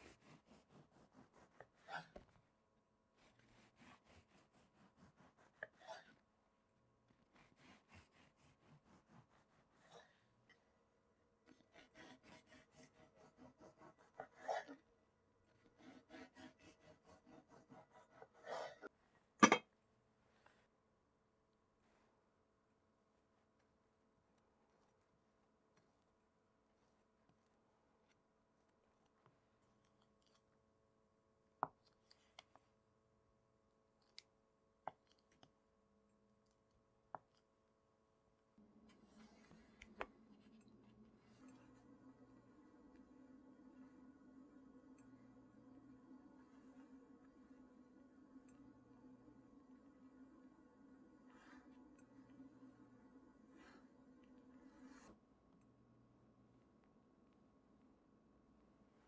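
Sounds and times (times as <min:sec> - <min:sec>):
knife sawing through bread: 0:00.0 - 0:02.2, 0:03.2 - 0:06.2, 0:07.3 - 0:10.2, 0:11.5 - 0:14.8, 0:15.7 - 0:18.9.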